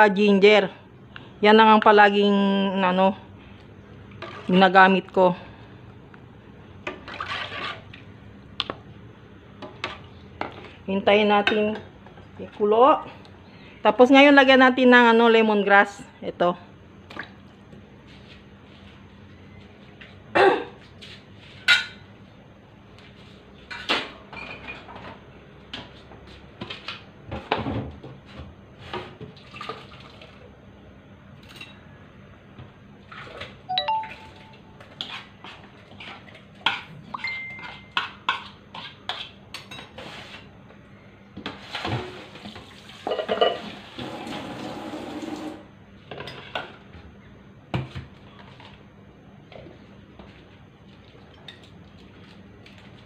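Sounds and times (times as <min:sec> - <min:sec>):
dishes and pots clattering: 0:43.0 - 0:43.7.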